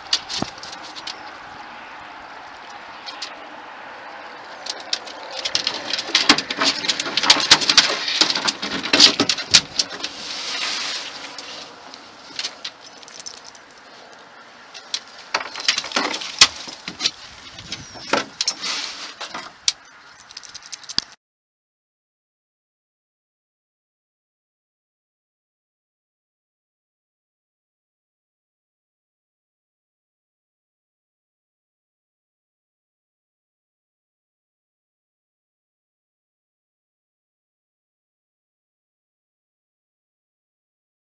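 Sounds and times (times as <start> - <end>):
metallic jingling: 12.2 - 14.2, 14.8 - 18.7, 19.5 - 21.2.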